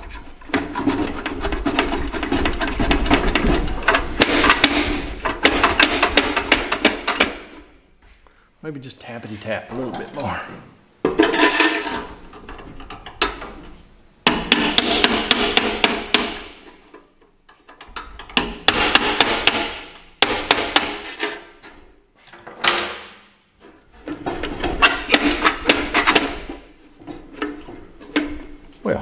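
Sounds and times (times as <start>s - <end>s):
hammer tapping on sheet metal: 1.7s - 7.5s, 14.3s - 16.7s, 18.3s - 21.1s.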